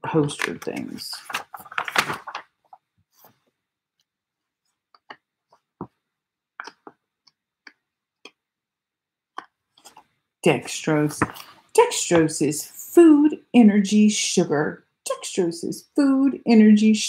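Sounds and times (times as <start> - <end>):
magazine pages rustling: 0.2 - 3.6, 11.0 - 11.6.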